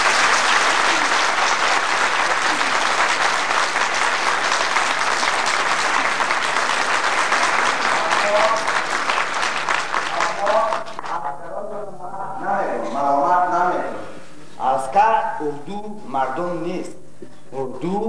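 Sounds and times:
audience applauding: 0:00.0 - 0:11.4
man's voice: 0:10.2 - 0:18.0.

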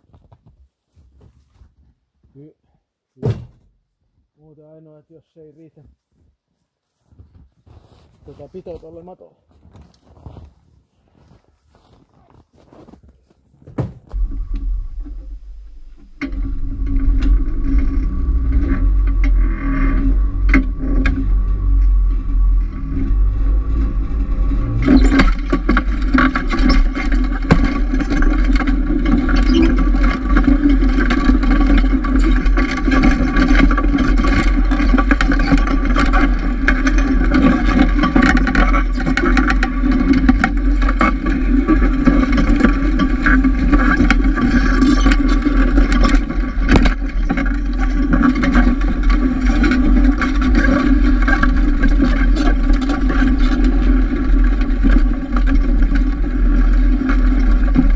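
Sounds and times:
sled scraping and knocking: 0:07.0 - 0:57.9
snowmobile engine running: 0:14.1 - 0:57.9.

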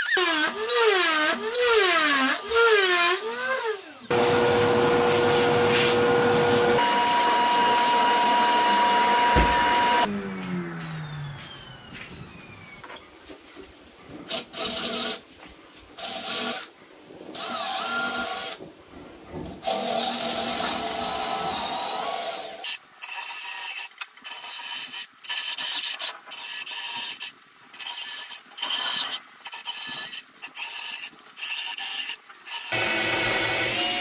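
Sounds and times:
cordless drill whining: 0:06.8 - 0:10.1, 0:32.7 - 0:34.0.

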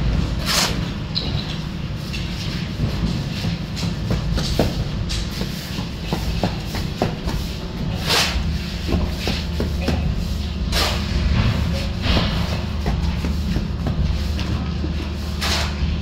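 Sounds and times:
shovel scraping cement mix: 0:00.2 - 0:00.9, 0:02.1 - 0:16.0.

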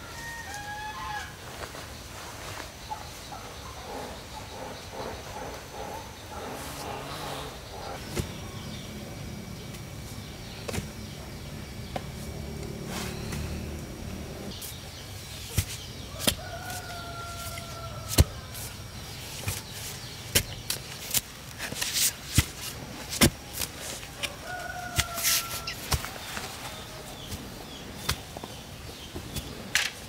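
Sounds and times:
rooster crowing: 0:00.0 - 0:01.4, 0:16.1 - 0:18.5, 0:24.2 - 0:26.0
blade chopping bamboo: 0:19.4 - 0:26.1.

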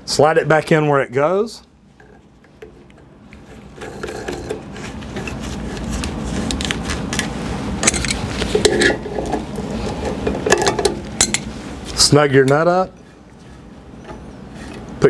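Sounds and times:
plastic rubbing: 0:02.2 - 0:10.7.

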